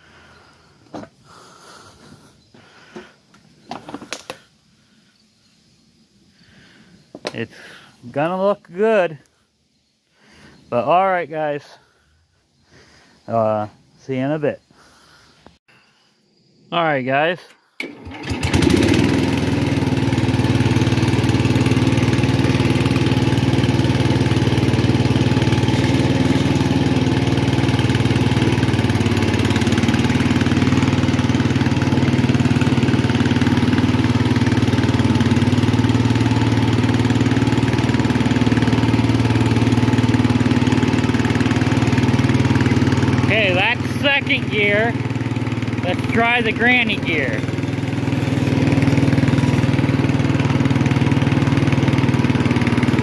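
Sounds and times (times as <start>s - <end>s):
tractor engine starting and running: 17.3s - 53.0s.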